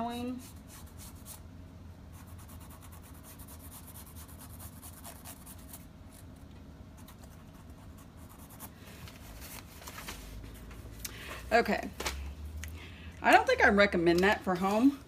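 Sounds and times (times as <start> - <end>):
marker scratching on fabric: 2.2 - 5.8.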